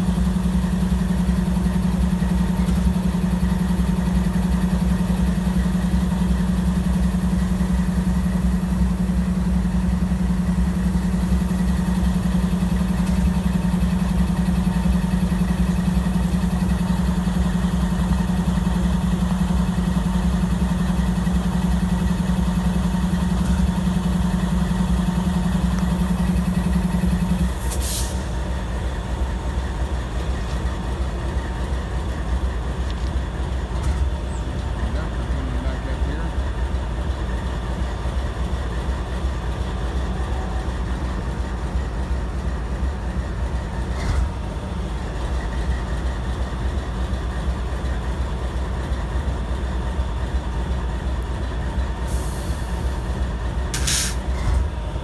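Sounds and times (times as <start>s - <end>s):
diesel locomotive engine drone: 0.0s - 55.0s
brief hiss: 27.6s - 28.4s, 53.7s - 54.4s.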